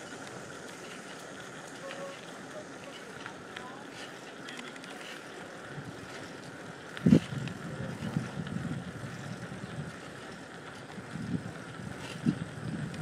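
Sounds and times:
steady hiss: 0.0s - 13.0s
wind buffeting microphone: 5.6s - 13.0s.

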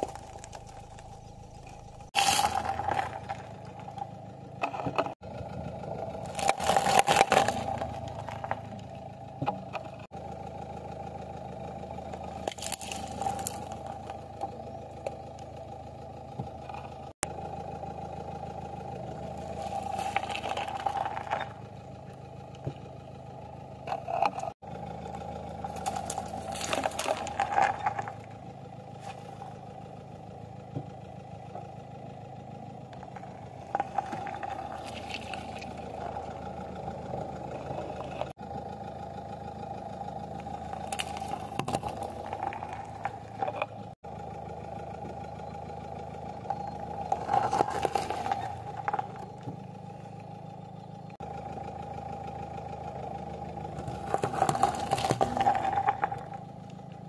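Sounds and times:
car engine running: 0.0s - 57.0s.

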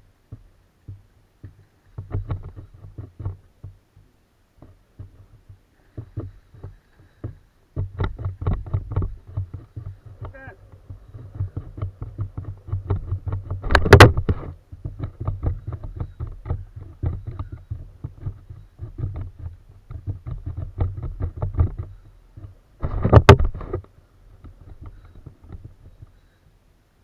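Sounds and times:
kayak and tackle handling noise: 0.0s - 27.0s
short irregular clicks and knocks: 0.2s - 26.6s.

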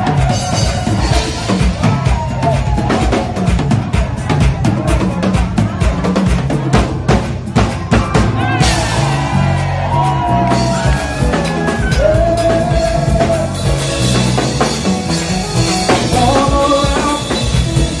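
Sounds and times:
bass line: 0.0s - 18.0s
drum kit groove: 0.0s - 18.0s
live band music: 0.0s - 18.0s
sliding melody line: 10.2s - 18.0s.

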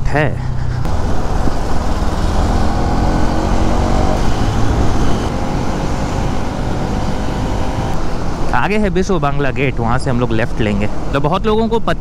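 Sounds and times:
motorcycle engine running: 0.2s - 9.0s
wind rushing over microphone: 0.5s - 11.2s.

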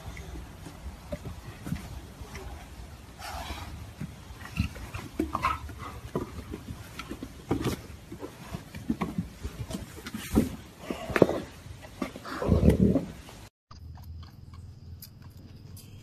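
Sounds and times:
big cats grunting and growling: 10.4s - 13.2s.

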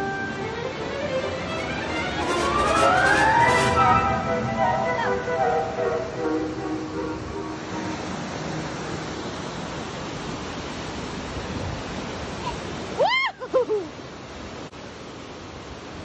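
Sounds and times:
water rushing over rocks: 0.0s - 16.0s.

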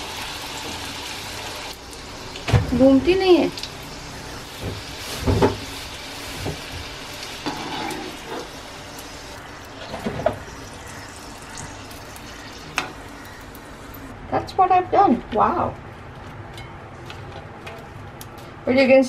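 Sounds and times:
deep-frying sizzle: 0.0s - 14.2s.

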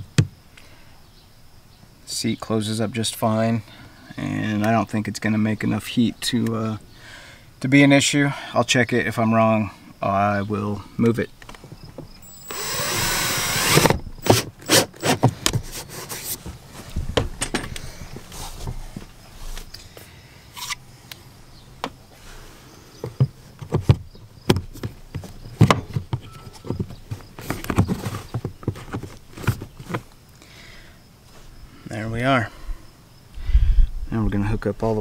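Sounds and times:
cordless drill driving screw: 12.2s - 15.2s.

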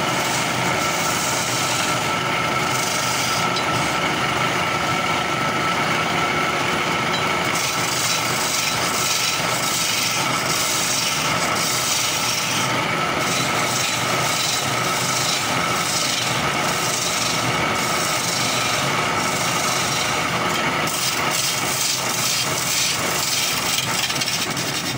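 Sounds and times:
chisel scraping spinning wood: 0.0s - 24.9s
wood lathe humming: 0.0s - 24.9s.

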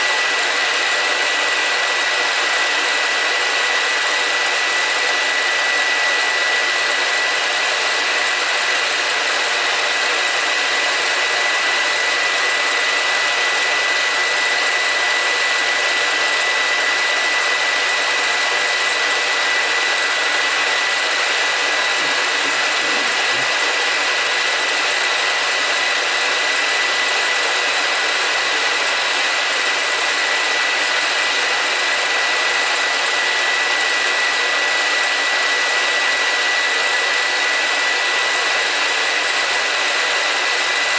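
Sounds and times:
film projector whirring: 0.0s - 40.9s
high thin whine: 21.5s - 24.2s.

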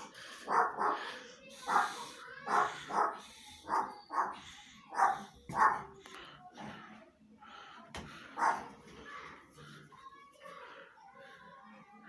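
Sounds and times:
dog barking: 0.4s - 1.1s, 1.7s - 6.0s, 8.4s - 8.7s.

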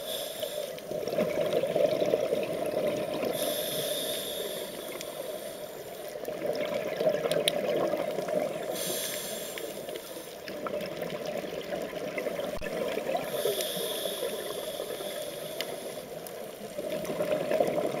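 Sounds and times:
regulator hissing inhalations: 0.0s - 0.9s, 3.3s - 6.2s, 8.6s - 10.5s, 13.2s - 16.7s.

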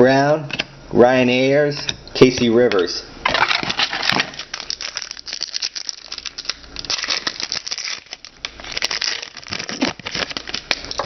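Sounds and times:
paper and plastic crackling: 3.2s - 11.0s.

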